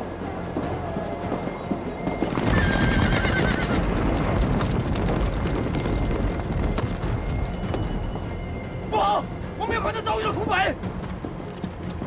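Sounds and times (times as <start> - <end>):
horses galloping through snow: 0.6 - 8.4
horse whinnying: 2.4 - 4.3.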